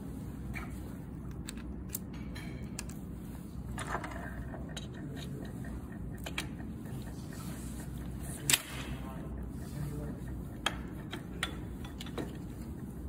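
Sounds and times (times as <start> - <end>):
low background hum: 0.0 - 13.0
metallic clicks of bike parts: 1.3 - 3.0.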